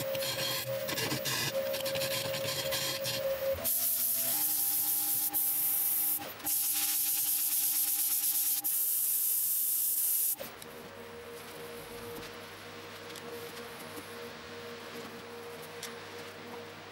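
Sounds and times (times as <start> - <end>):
lathe motor whine: 0.0 - 6.4
sanding pad hissing on wood: 3.6 - 10.4
quiet steady hum: 10.4 - 16.9.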